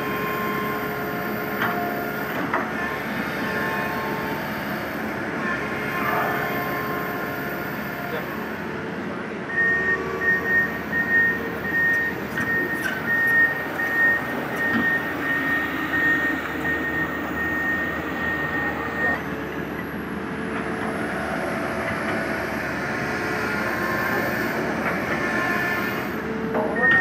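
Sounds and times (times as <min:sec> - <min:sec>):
excavator diesel engine running: 0:00.0 - 0:27.0
high electronic alarm beeping: 0:09.7 - 0:19.2.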